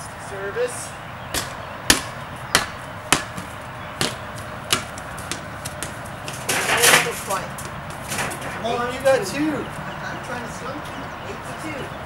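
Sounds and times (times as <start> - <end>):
feet scuffling: 2.6 - 8.7.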